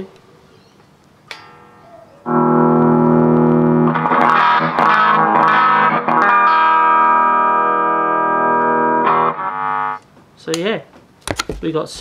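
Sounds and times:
electric guitar chords: 1.3s - 10.2s.

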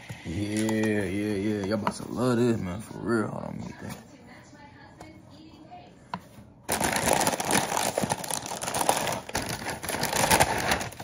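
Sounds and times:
chip bag crinkling: 6.7s - 11.0s.

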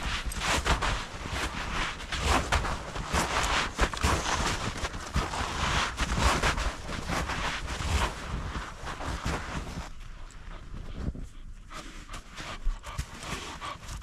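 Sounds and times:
boots crunching through snow: 0.0s - 9.9s
dogs scuffing through snow: 0.0s - 14.0s
wind rumble on microphone: 0.0s - 14.0s.

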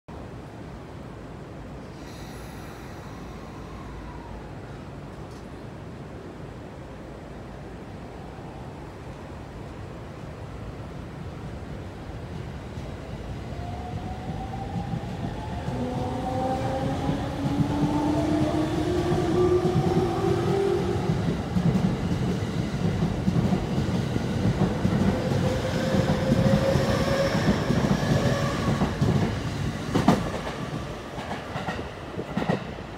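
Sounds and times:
train wheels clattering on rails: 14.2s - 32.9s.

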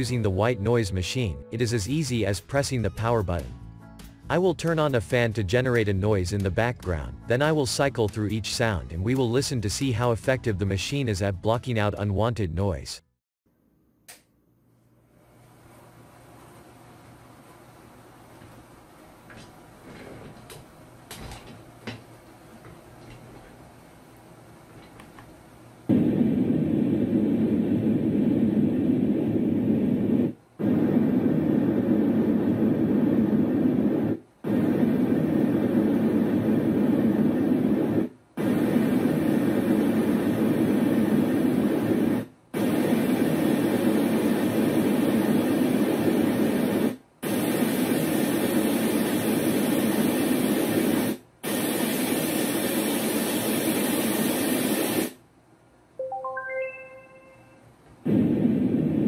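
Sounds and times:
fan noise: 14.1s - 47.0s
white noise machine: 14.1s - 59.0s.

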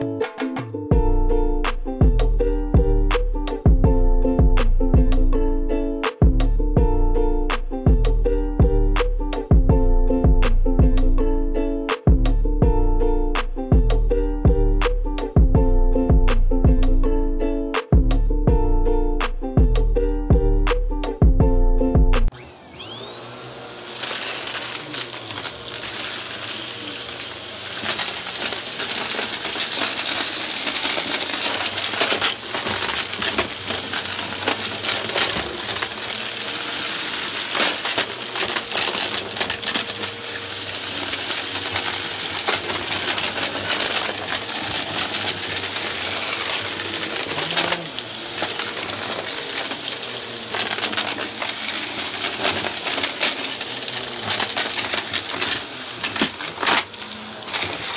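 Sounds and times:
vacuum cleaner motor: 22.3s - 57.9s
brushroll crunching debris: 24.0s - 57.9s
grit rattling through vacuum: 24.0s - 57.9s.

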